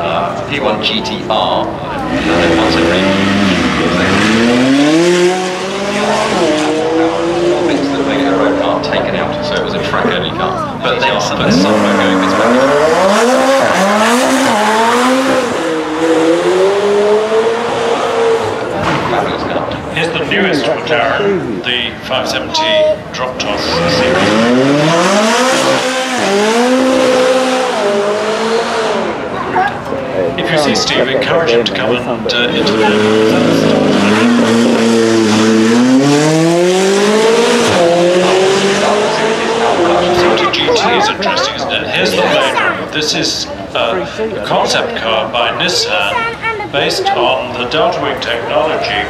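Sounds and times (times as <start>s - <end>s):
engine revving hard: 2.0s - 21.6s, 23.4s - 29.6s, 30.4s - 43.0s.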